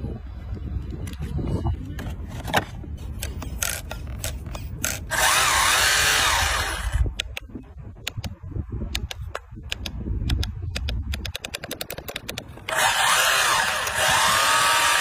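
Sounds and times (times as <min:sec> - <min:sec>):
toy car electric motor whirring: 0:03.2 - 0:07.1, 0:12.6 - 0:15.0
sharp clicks and ticks: 0:03.2 - 0:15.0.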